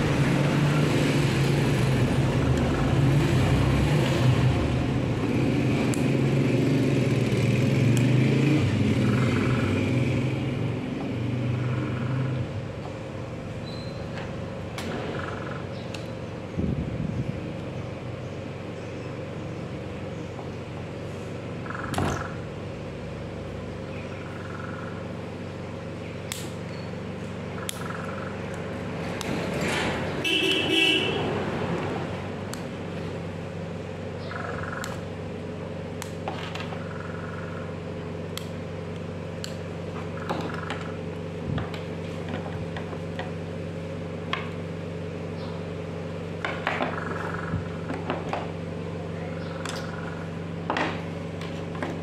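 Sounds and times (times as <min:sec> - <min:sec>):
steady background hum: 0:10.3 - 0:52.0.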